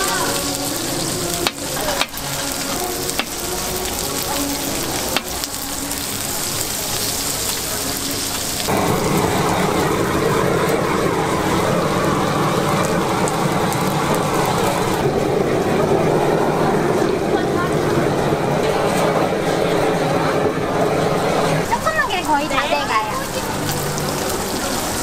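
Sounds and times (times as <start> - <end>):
food sizzling on griddle: 0.0 - 9.9, 21.6 - 25.0
blowtorch flame rushing: 0.0 - 25.0.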